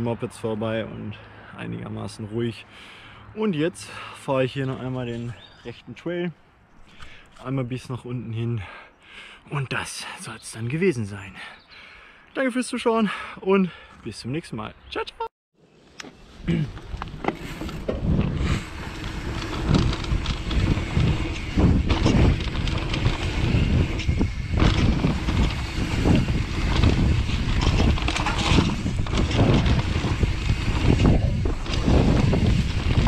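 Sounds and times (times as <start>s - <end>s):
bike tyres rumbling over dirt: 16.1s - 33.0s
bike rattling and knocking: 16.7s - 33.0s.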